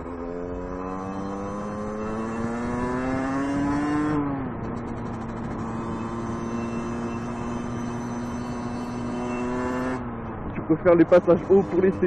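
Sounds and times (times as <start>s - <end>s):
motorcycle engine accelerating: 0.0s - 12.0s.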